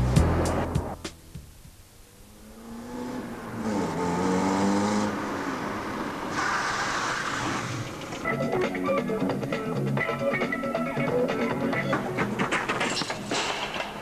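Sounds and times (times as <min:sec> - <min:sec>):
music: 0:00.0 - 0:01.7, 0:08.2 - 0:14.0
car engine: 0:00.0 - 0:08.4.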